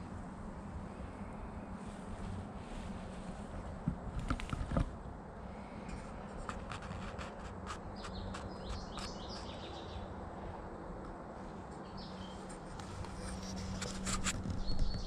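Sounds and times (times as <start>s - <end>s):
steady low rumble: 0.0s - 7.5s
bird chirps: 8.0s - 10.1s, 11.8s - 12.4s, 14.5s - 15.0s.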